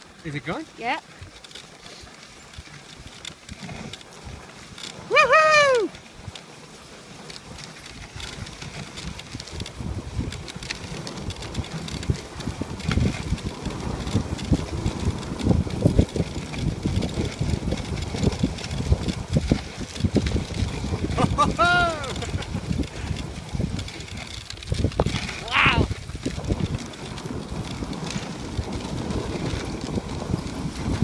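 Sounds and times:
sled runners rumbling on snow: 0.0s - 31.0s
wind on microphone: 7.9s - 31.0s.

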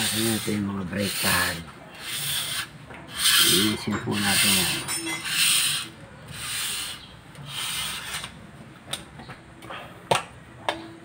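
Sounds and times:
brake pad rasping strokes: 0.0s - 8.6s.

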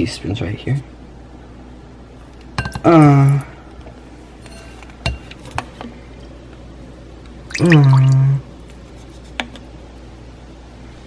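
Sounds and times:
person humming: 7.6s - 8.4s.

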